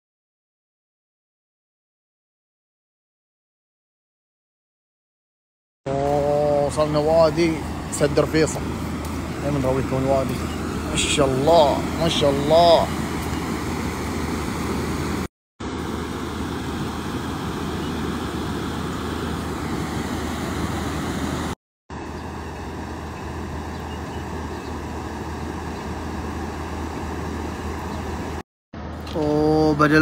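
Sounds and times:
floodwater rushing: 5.9 - 28.4.

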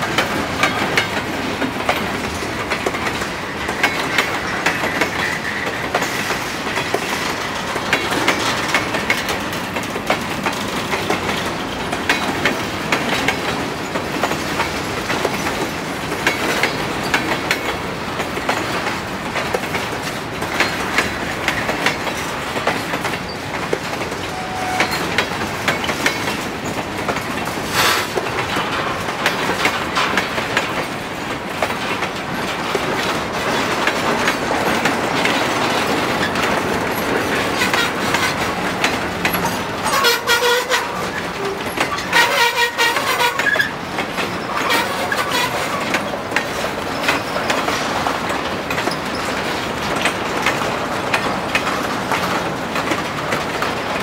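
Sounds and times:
freight train rumbling: 0.0 - 54.0
wheel clicks over rail joints: 0.1 - 54.0
brief tones: 24.4 - 25.0.

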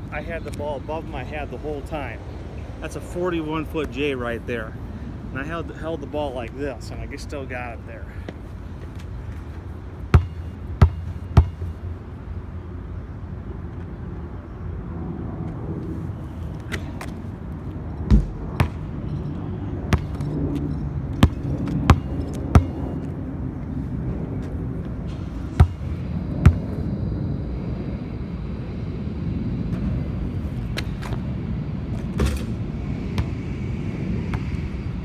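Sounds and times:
low traffic rumble: 0.0 - 35.0
basketball bouncing on concrete: 10.1 - 11.7, 18.1 - 18.9, 19.9 - 20.3, 21.1 - 22.8, 25.6 - 25.8.

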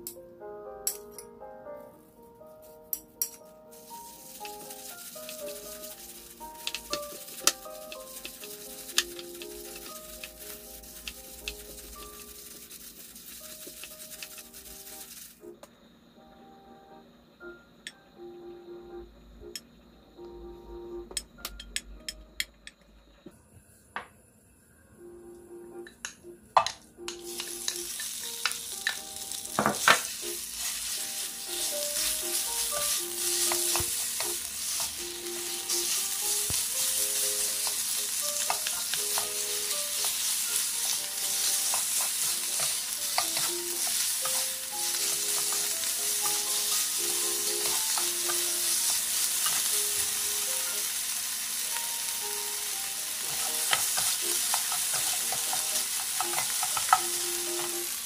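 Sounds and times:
pork sizzling in a frying pan: 3.3 - 15.4, 27.1 - 58.0
spatulas scraping a pan: 3.8 - 15.2, 29.8 - 50.0, 53.2 - 57.8.

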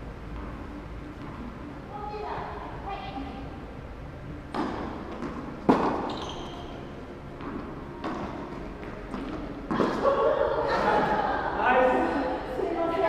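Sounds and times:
tennis ball struck by rackets: 4.5 - 6.2, 7.4 - 10.0
ball bouncing on court: 4.5 - 10.0.

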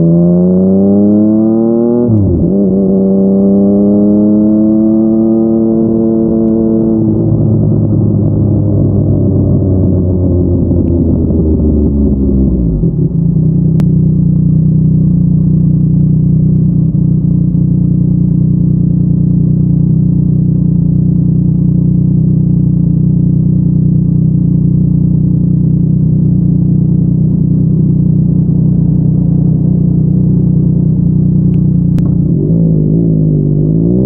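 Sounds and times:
motorcycle engine idling: 7.0 - 33.8.

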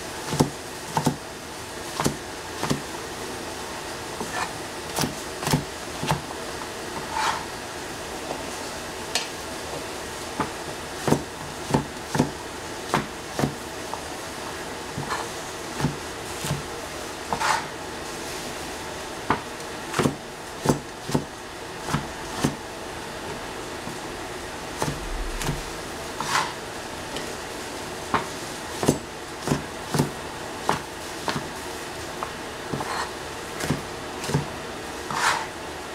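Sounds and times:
cleaver chopping on cutting board: 0.3 - 1.2, 2.0 - 2.8, 4.2 - 6.3, 10.4 - 13.6, 14.9 - 16.7, 17.3 - 17.7, 19.2 - 21.3, 21.9 - 22.6, 24.8 - 25.6, 26.2 - 26.6, 28.1 - 31.6, 32.2 - 34.5, 35.1 - 35.5.

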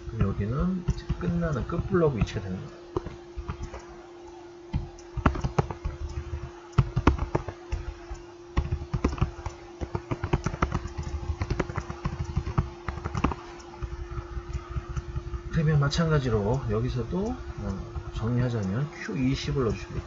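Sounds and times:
steady hum: 0.0 - 20.0
computer keyboard key clicks: 4.9 - 13.9.

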